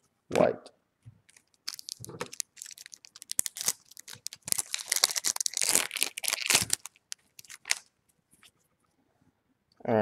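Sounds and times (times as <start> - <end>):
plastic wrapper crinkling: 1.2 - 7.9.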